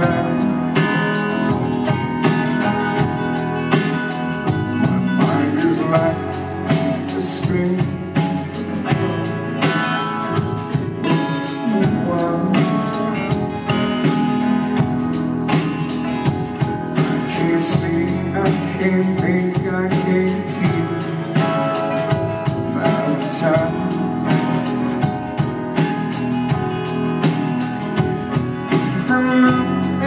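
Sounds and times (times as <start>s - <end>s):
bass guitar: 0.0s - 30.0s
drum kit beat: 0.0s - 30.0s
electric guitars: 0.0s - 30.0s
strummed acoustic guitar: 0.0s - 30.0s.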